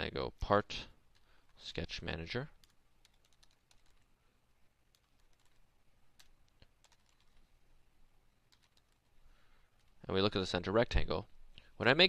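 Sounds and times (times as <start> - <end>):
keyboard typing: 2.5 - 4.2, 4.8 - 7.5, 8.4 - 9.2.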